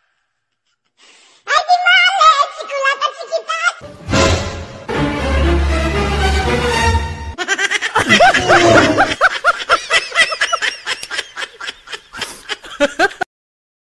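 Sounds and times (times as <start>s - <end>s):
person laughing in high bursts: 7.4s - 13.3s.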